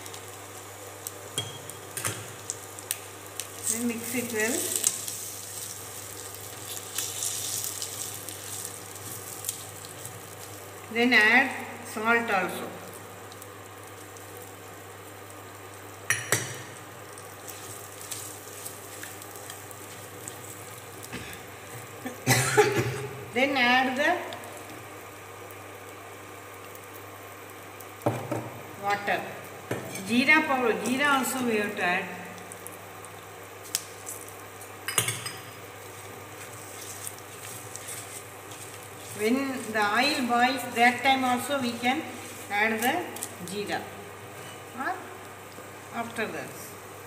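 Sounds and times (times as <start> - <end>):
vegetables sizzling in oil: 0.0 - 47.0
spatula stirring and scraping: 35.8 - 42.6.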